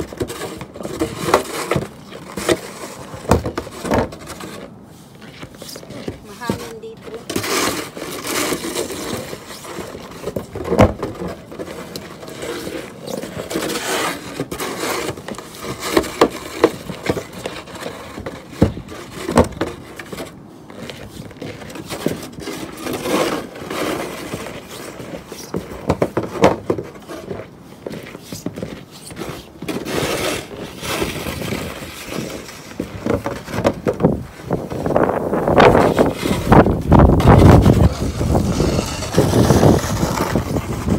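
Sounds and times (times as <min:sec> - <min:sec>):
shovel scraping through snow: 0:03.8 - 0:10.0, 0:11.7 - 0:18.2, 0:19.0 - 0:26.3, 0:27.0 - 0:32.8, 0:34.3 - 0:40.9.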